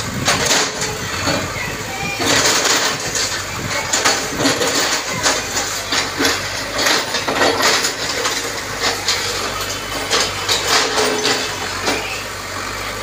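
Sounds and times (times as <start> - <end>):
diesel engine humming: 0.0 - 13.0
bricks and masonry crashing down: 2.2 - 12.2.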